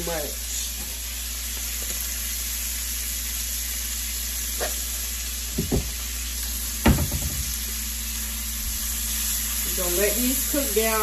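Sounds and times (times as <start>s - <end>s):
vegetables sizzling in a skillet: 0.0s - 11.0s
short knocks: 6.8s - 7.5s.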